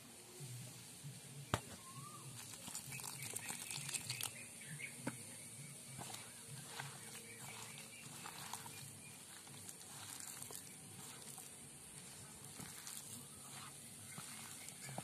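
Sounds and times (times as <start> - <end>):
hand mixing wet batter: 2.0 - 4.4, 5.8 - 15.0.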